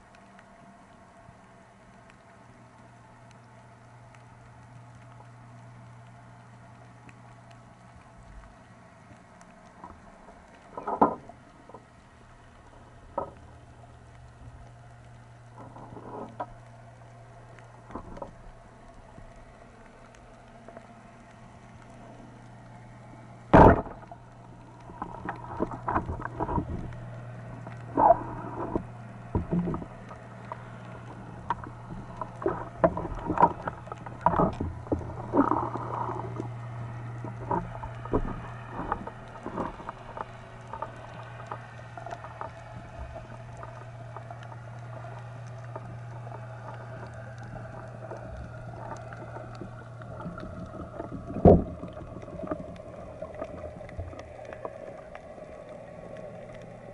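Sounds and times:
steady low hum: 0.0s - 56.9s
clicks and knocks of shaft: 9.8s - 11.8s.

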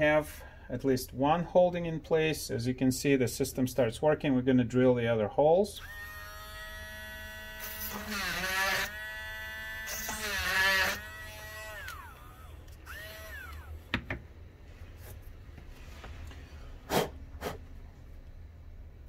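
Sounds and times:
rotary tool drilling plastic: 5.8s - 13.7s.

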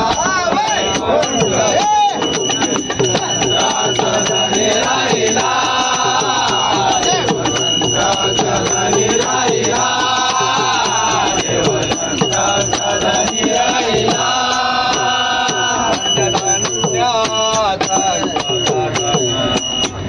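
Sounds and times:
fast sharp percussion beat: 0.0s - 20.0s
men singing devotional song: 0.0s - 20.0s.

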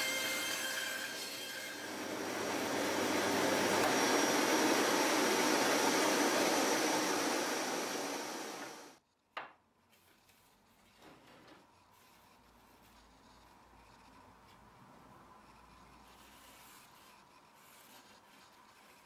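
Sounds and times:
bandsaw and vacuum running: 0.0s - 9.0s.

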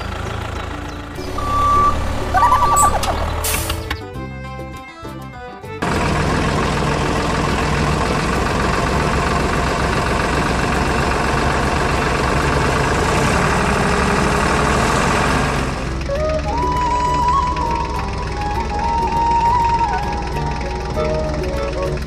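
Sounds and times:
tractor engine chugging: 0.0s - 4.5s, 5.7s - 22.0s
music: 0.0s - 5.9s, 15.8s - 22.0s.

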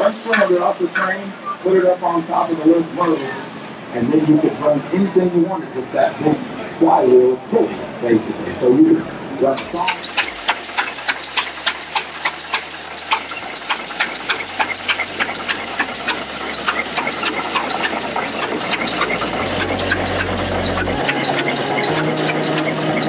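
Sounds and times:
tractor engine idling: 0.0s - 23.0s
regular clicking beat: 9.6s - 23.0s.

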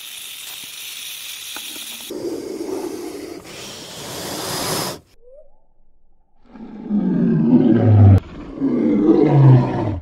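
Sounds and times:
snake hissing: 0.0s - 5.2s.

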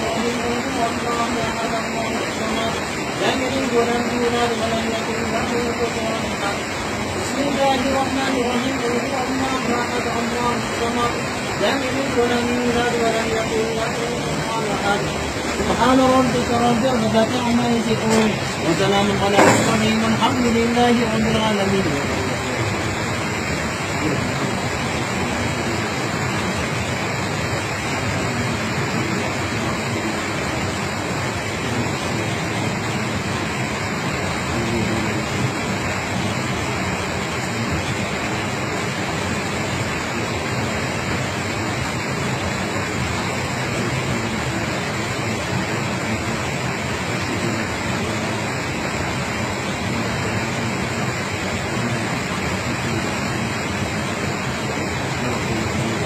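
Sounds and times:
water rushing over rock: 0.0s - 56.0s.

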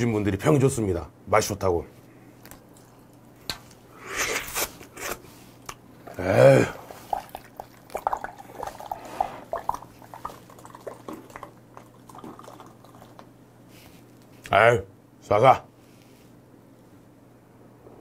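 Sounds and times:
liquid gurgling and dripping: 6.0s - 13.3s.

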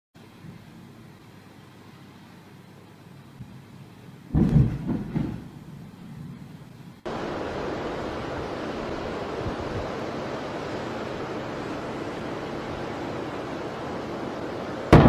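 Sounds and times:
wind: 0.2s - 15.0s
sea surf: 7.1s - 15.0s.

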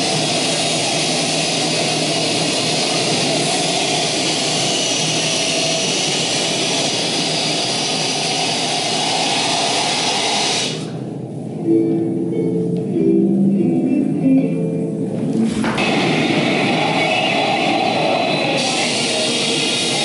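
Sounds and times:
electronic hiss drone: 0.0s - 11.0s, 15.5s - 20.0s.

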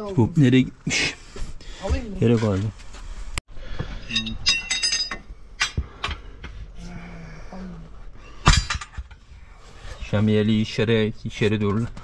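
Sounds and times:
metal clinking on wheel rim: 4.1s - 5.8s.

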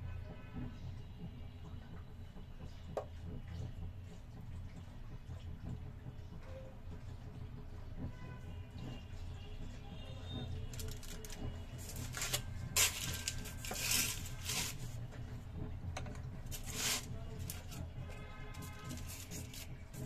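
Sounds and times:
aluminium foil crinkling: 10.7s - 15.0s, 16.5s - 17.8s, 18.5s - 20.0s.

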